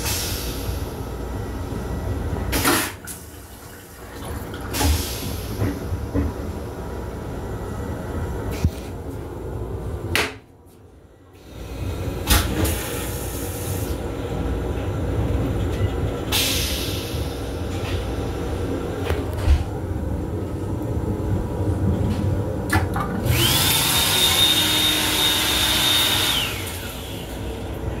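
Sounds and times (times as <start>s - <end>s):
train running noise: 0.0s - 28.0s
whining motor-driven toilet flush: 2.6s - 5.6s, 22.8s - 27.8s.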